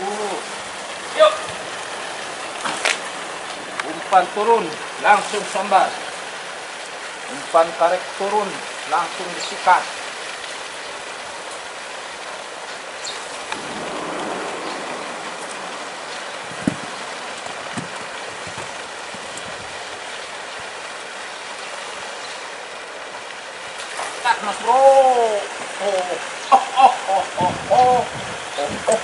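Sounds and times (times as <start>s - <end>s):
steady rushing noise: 12.6s - 19.7s.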